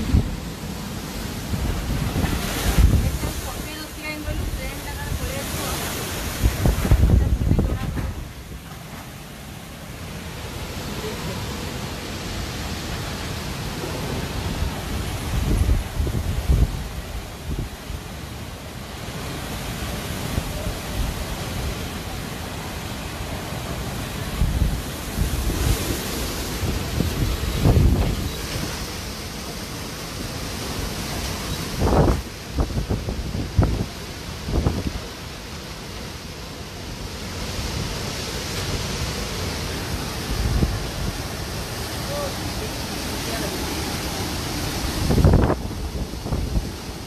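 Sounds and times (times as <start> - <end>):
strong wind blowing: 0.0 - 8.6, 9.4 - 18.4, 19.0 - 47.0
wind buffeting microphone: 0.0 - 8.6, 14.2 - 18.1, 23.9 - 35.8, 37.0 - 47.0.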